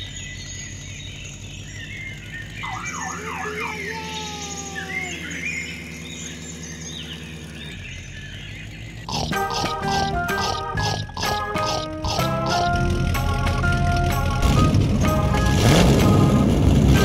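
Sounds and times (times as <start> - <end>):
bird chirps: 0.0 - 12.7
low engine hum: 0.0 - 17.0
warbling siren-like tone: 2.6 - 5.7.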